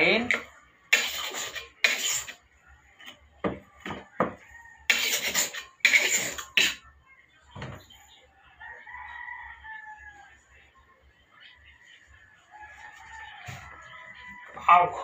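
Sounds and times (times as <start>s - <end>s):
knife scraping on sharpening stone: 4.9s - 6.8s
rooster crowing: 8.6s - 10.3s, 12.5s - 15.0s.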